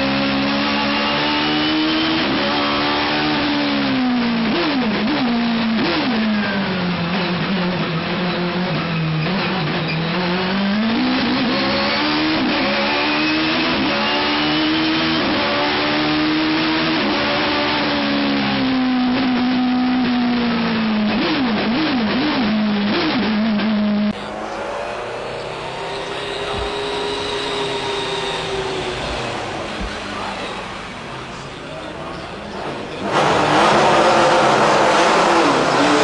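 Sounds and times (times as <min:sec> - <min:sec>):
racing engine revving: 0:00.0 - 0:36.0.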